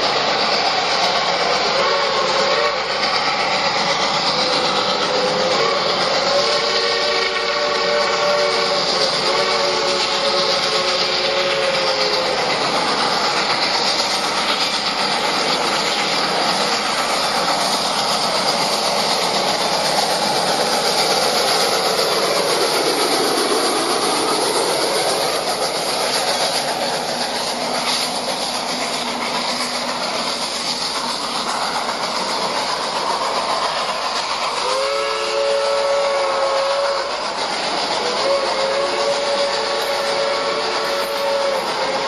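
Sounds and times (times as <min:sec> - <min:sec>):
steam train running by: 0:00.0 - 0:42.0
steam whistle blast: 0:01.6 - 0:03.0, 0:04.4 - 0:12.6, 0:33.6 - 0:37.3, 0:37.9 - 0:42.0.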